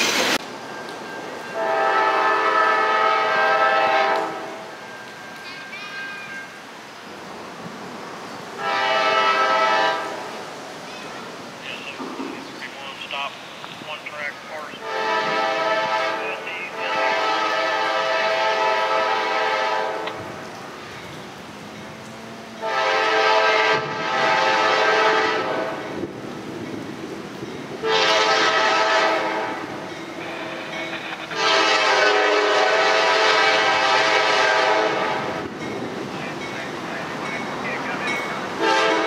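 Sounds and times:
locomotive air horn blasts: 0:01.6 - 0:04.6, 0:08.6 - 0:10.3, 0:14.8 - 0:20.1, 0:22.6 - 0:25.8, 0:27.8 - 0:35.3, 0:38.6 - 0:39.0.

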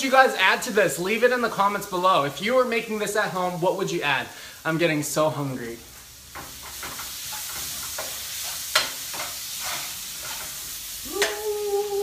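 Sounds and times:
food sizzling in a frying pan: 0:00.0 - 0:12.0
metal spatula scraping pan: 0:07.3 - 0:10.6.

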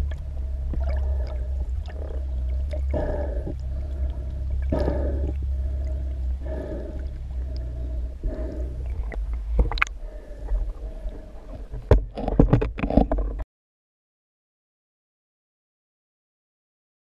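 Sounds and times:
faint hum: 0:00.0 - 0:13.4
underwater rumble of moving water: 0:00.0 - 0:13.4.

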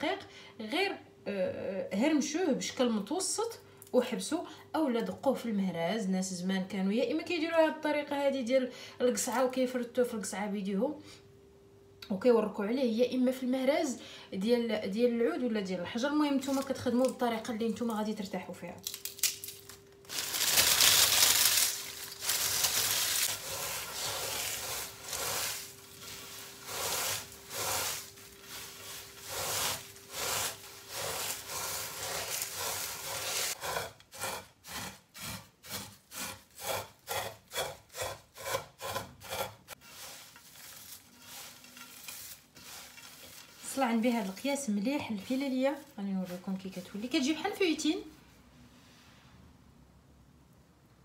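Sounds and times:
fried dough crunching: 0:18.8 - 0:24.0
hand rubbing strokes on crumbs: 0:23.3 - 0:36.4, 0:39.3 - 0:47.3.

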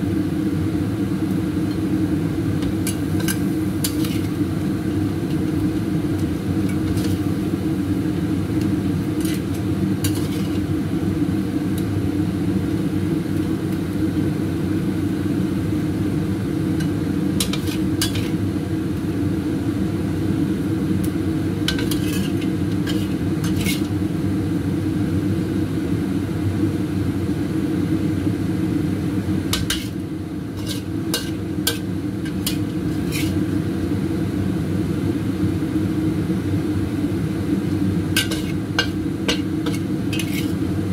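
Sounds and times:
metal spatula scraping a wok: 0:02.7 - 0:04.4, 0:06.7 - 0:07.4, 0:09.2 - 0:10.7, 0:16.8 - 0:18.4, 0:21.7 - 0:24.0, 0:29.6 - 0:33.5, 0:38.1 - 0:40.7.

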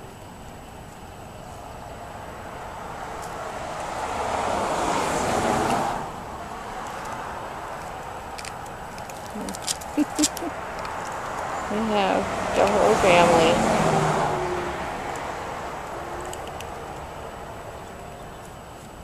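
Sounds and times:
vehicle driving past: 0:02.0 - 0:07.8, 0:10.6 - 0:18.4
low background hum: 0:06.2 - 0:13.6.

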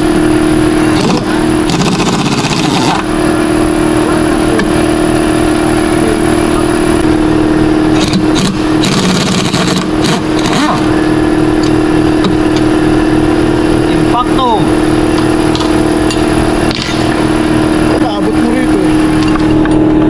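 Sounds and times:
steady mechanical hum: 0:00.0 - 0:20.0
impact wrench rattling bursts: 0:00.9 - 0:03.1, 0:07.9 - 0:11.0.

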